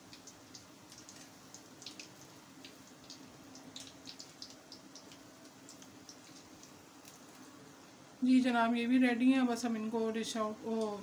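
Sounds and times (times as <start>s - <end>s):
hot oil crackling and popping: 0.0s - 7.8s, 10.6s - 11.0s.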